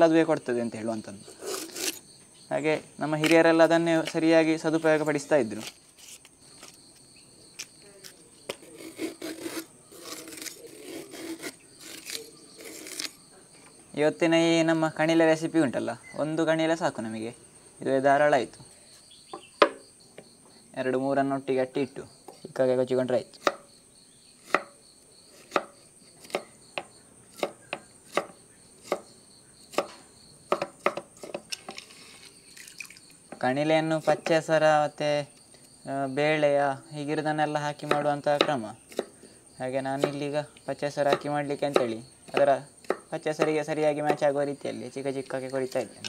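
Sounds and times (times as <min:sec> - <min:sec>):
high insect chirr: 0:00.0 - 0:46.0
bamboo shoot being peeled: 0:01.3 - 0:02.0, 0:05.4 - 0:13.2
knife slicing bamboo shoot: 0:01.3 - 0:02.0, 0:07.6 - 0:13.2
knife chopping on wooden board: 0:24.5 - 0:24.8, 0:25.5 - 0:29.1, 0:29.7 - 0:31.8, 0:37.8 - 0:39.1, 0:41.1 - 0:44.3.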